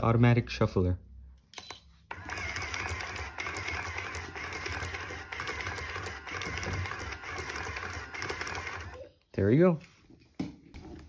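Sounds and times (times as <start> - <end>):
small motor humming: 2.1 - 9.0.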